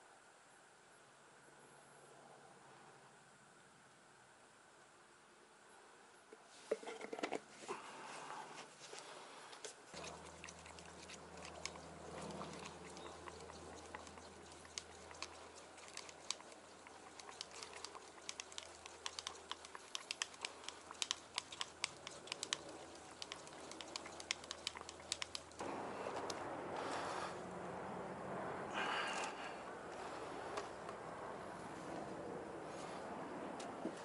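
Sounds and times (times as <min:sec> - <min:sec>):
outdoor rush: 0:09.9 - 0:34.0
stick clicking against plastic cup: 0:10.0 - 0:25.6.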